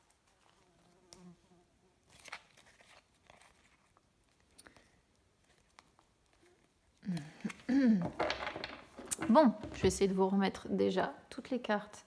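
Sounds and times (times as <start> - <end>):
cards shuffling: 2.1 - 9.9.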